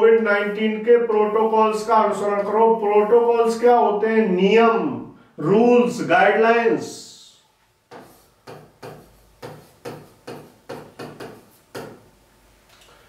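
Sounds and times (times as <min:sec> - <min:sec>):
pen tapping and scraping on screen: 0:07.9 - 0:12.1.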